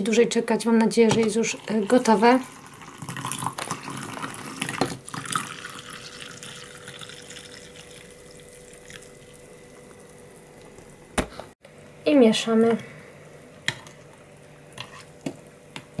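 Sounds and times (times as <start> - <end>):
milk pouring into a mug: 1.6 - 10.2.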